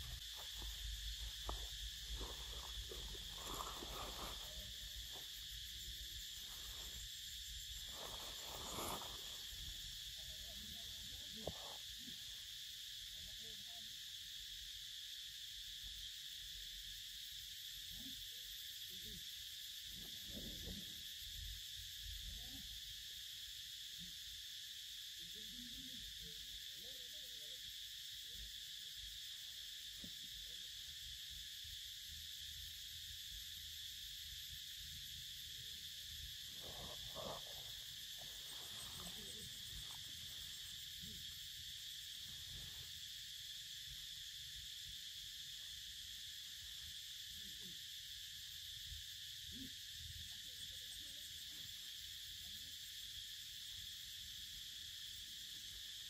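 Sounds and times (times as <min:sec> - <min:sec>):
insect chorus: 0:00.0 - 0:56.0
dry leaves rustling: 0:02.2 - 0:04.6.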